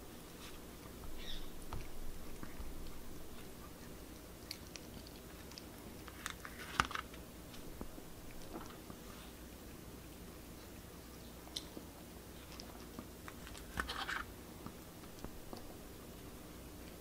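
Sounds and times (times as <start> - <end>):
dog chewing food: 0.1 - 10.8.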